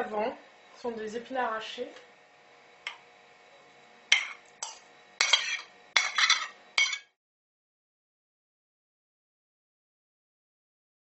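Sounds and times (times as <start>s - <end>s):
fork clinking on plate: 4.1s - 7.1s
fork scraping a plate: 4.1s - 7.1s.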